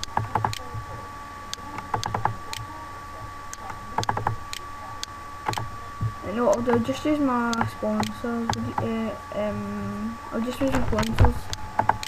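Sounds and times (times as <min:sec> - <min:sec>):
mouse and keyboard clicks: 0:00.0 - 0:00.7, 0:01.8 - 0:02.6, 0:03.6 - 0:05.7, 0:10.7 - 0:12.0.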